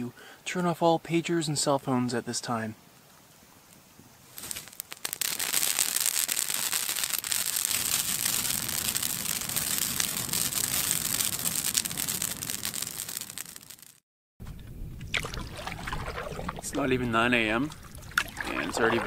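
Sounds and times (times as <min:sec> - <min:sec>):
campfire crackling and popping: 0:03.0 - 0:14.0, 0:15.0 - 0:19.0.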